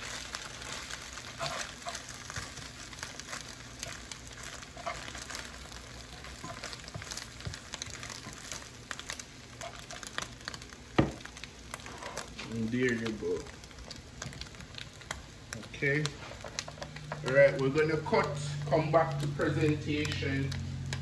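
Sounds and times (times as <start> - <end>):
meat and eggs sizzling: 0.0 - 21.0
spatula scraping and tapping pan: 1.2 - 8.7, 16.0 - 21.0.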